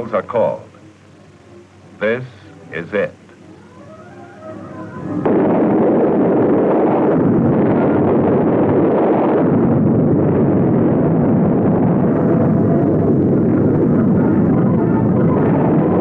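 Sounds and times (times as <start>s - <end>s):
explosion blast with rumbling: 5.2s - 16.0s.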